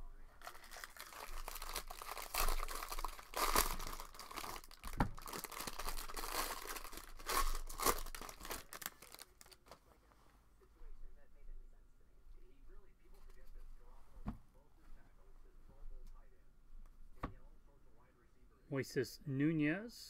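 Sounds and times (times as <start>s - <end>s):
foil wrapper tearing and crinkling: 0.4s - 9.6s.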